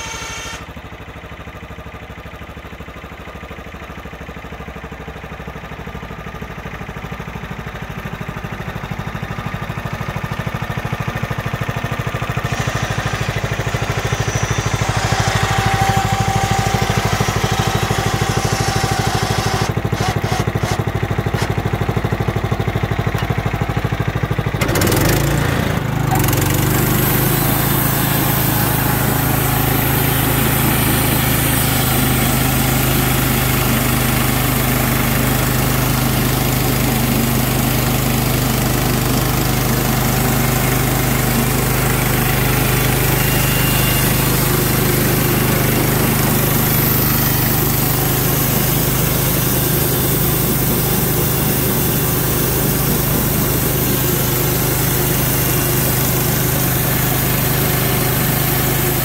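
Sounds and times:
sawmill engine running: 0.0s - 59.0s
band blade cutting log: 12.6s - 21.6s.

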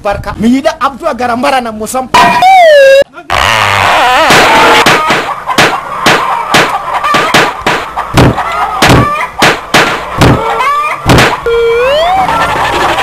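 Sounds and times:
people shouting and crying out: 2.1s - 5.2s
slaps and thumps of blows: 4.3s - 10.4s, 11.0s - 11.4s.

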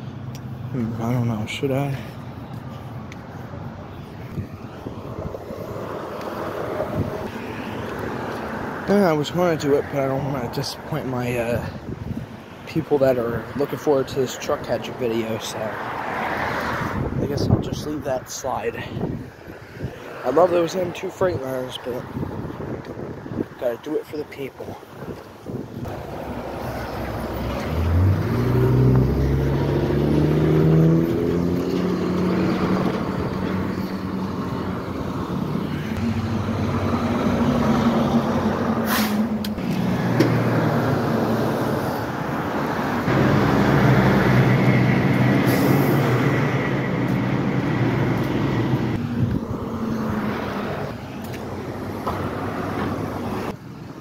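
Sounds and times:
garbage truck engine: 25.9s - 53.2s
bus engine pulling away: 25.9s - 53.6s
air brake hisses: 38.8s - 39.3s.

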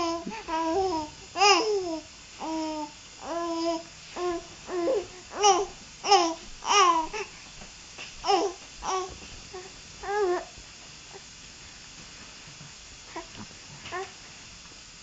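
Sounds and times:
baby cooing and babbling: 0.0s - 7.3s, 8.2s - 10.5s.

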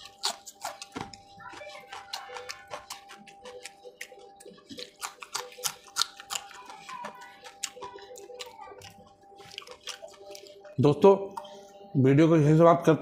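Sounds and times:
wet chewing and mouth clicks: 0.0s - 11.6s.

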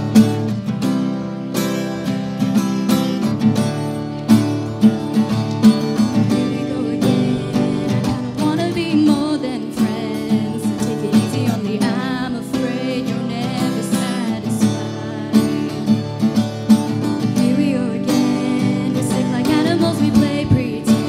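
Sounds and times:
acoustic guitar strumming: 0.0s - 21.0s
woman singing into microphone: 6.2s - 16.1s, 17.2s - 21.0s.

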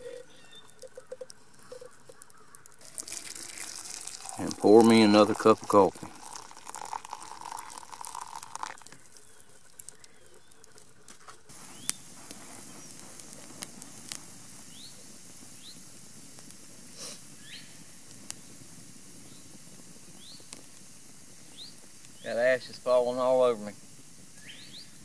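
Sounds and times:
coffee pouring into cup: 0.0s - 11.1s.

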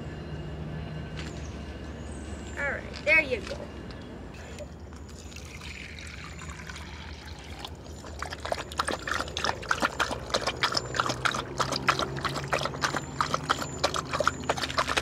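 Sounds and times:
dog lapping water: 6.7s - 15.0s.

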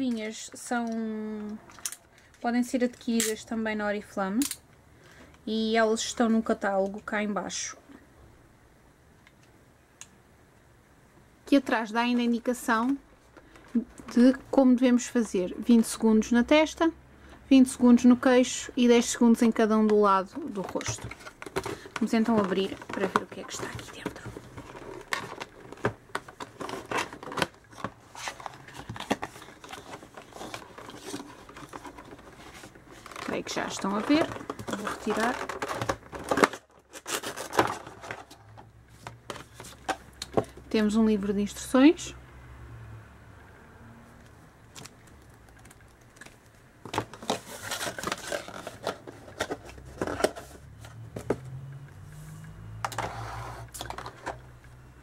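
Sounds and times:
plastic packaging crackling: 20.4s - 38.4s, 44.7s - 50.4s
paper booklet rustling: 46.2s - 51.3s.

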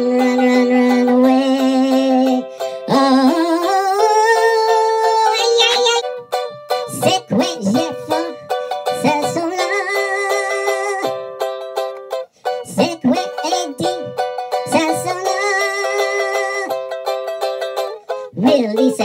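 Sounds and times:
ukulele strumming: 0.0s - 19.0s
man singing: 6.9s - 11.2s, 12.6s - 16.8s, 18.4s - 19.0s.

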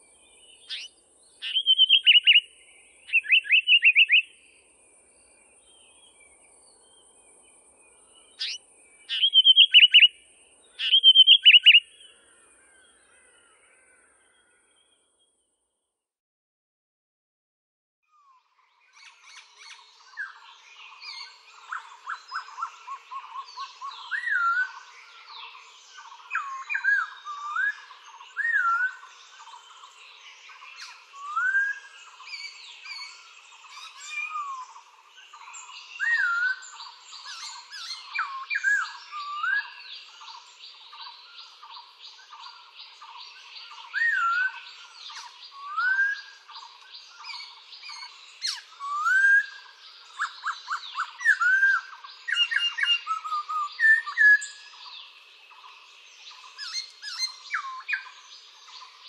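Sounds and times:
birds singing: 0.0s - 15.7s, 18.1s - 59.0s
swooping whistled bird notes: 0.6s - 4.4s, 8.3s - 10.2s, 10.8s - 12.0s, 19.0s - 59.0s.

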